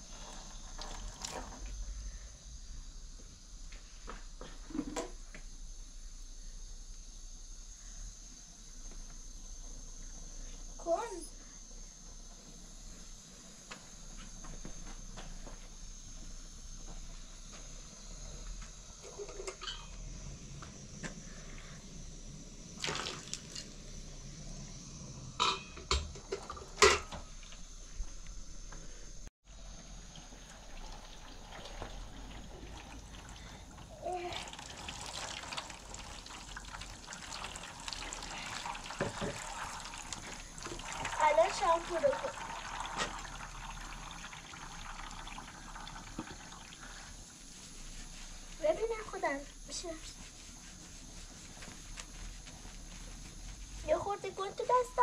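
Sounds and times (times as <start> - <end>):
water pouring into plastic basin: 0.0 - 1.6, 22.8 - 23.8, 30.0 - 47.1.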